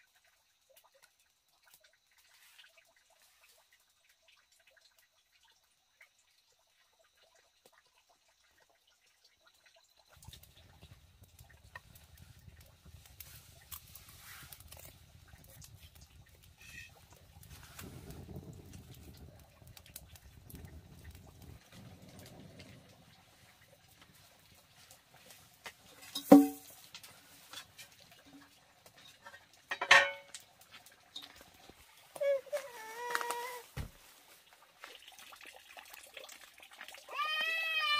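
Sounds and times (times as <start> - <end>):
low fire rumble: 10.1 - 34.1
wood fire crackling: 10.1 - 37.9
pot and lid clanking: 26.0 - 26.7, 29.0 - 30.4.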